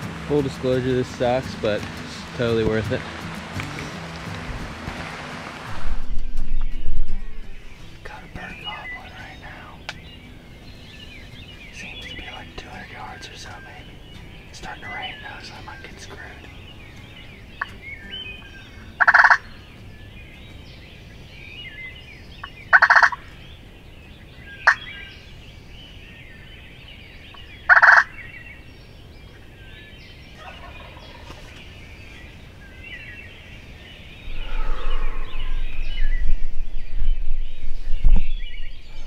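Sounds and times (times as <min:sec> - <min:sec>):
loud low rushing noise: 0:00.0 - 0:09.0, 0:34.2 - 0:39.0
rain hissing: 0:00.0 - 0:18.1
turkey gobbling: 0:19.0 - 0:19.4, 0:22.7 - 0:23.2, 0:27.7 - 0:28.1, 0:30.4 - 0:31.6.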